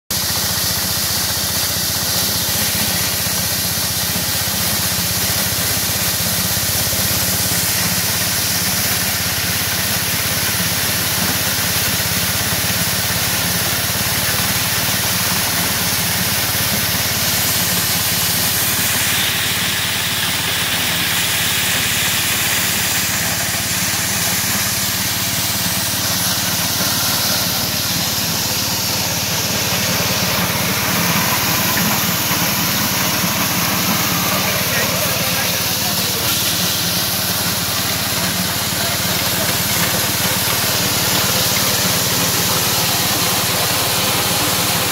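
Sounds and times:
threshing drum hiss: 0:00.2 - 0:44.9
stationary engine droning: 0:15.2 - 0:44.9.

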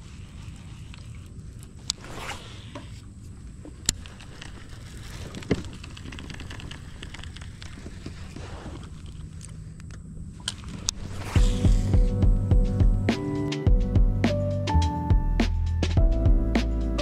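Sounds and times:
fishing reel whir: 0:00.0 - 0:03.1, 0:03.8 - 0:09.3, 0:10.5 - 0:12.4
steady low rumble: 0:05.8 - 0:14.4.

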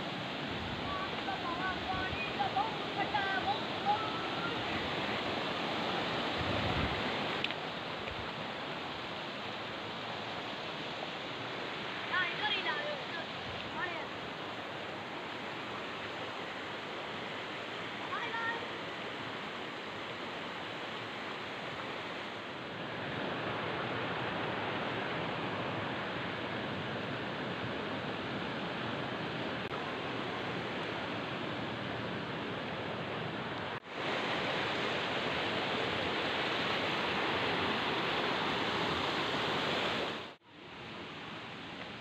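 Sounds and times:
stream rushing over stones: 0:00.0 - 0:42.0.

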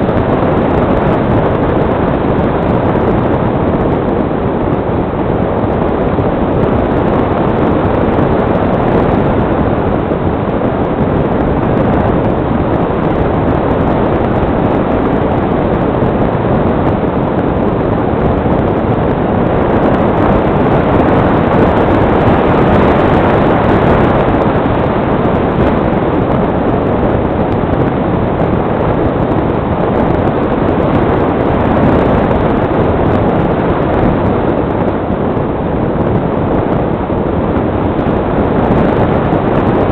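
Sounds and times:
wind rushing on microphone: 0:00.0 - 0:39.9.

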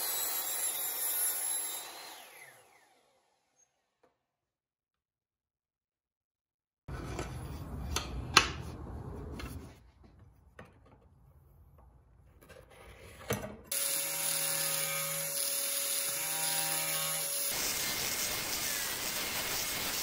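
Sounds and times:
angle grinder whining: 0:00.0 - 0:03.7, 0:13.7 - 0:20.0.

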